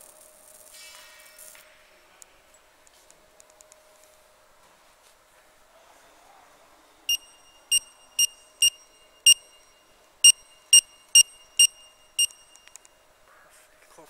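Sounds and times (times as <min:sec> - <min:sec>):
barcode scanner beeping: 0:07.1 - 0:13.0.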